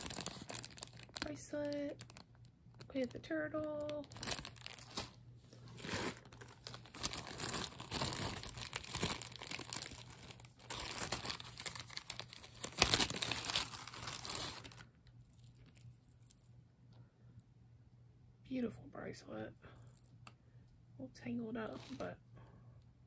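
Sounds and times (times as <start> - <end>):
plastic bags crinkling: 0.0 - 16.4.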